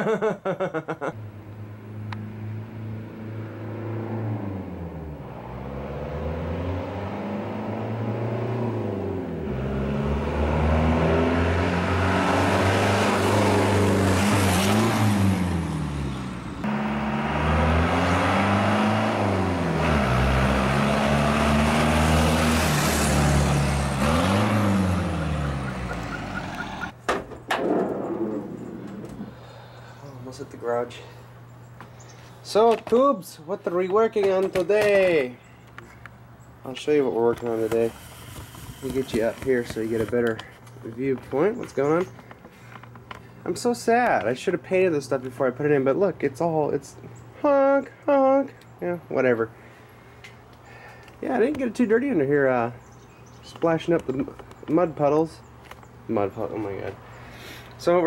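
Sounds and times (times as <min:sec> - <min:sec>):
tyre and road noise: 0:01.1 - 0:58.0
pickup truck engine accelerating: 0:03.6 - 0:27.0.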